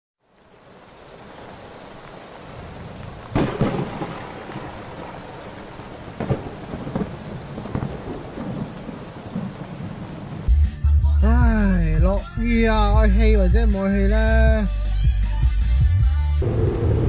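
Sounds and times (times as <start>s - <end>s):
rain hiss: 0.2s - 10.5s
thunder rumbling: 0.6s - 10.5s, 16.4s - 17.0s
loud thunderclap: 2.5s - 10.5s, 16.4s - 17.0s.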